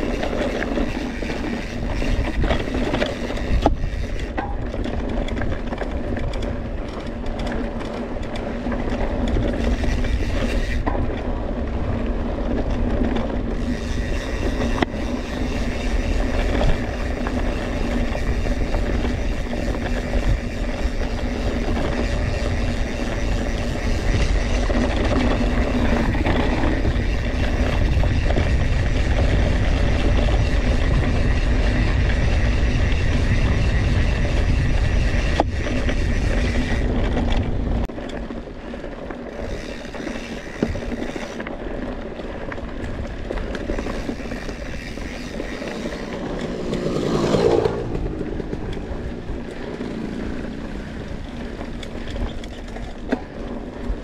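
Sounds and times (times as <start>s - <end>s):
wind on microphone: 0.0s - 7.4s, 8.7s - 38.0s
bike drivetrain and frame rattle: 0.0s - 54.0s
bike tyre rumble on dirt trail: 0.0s - 54.0s.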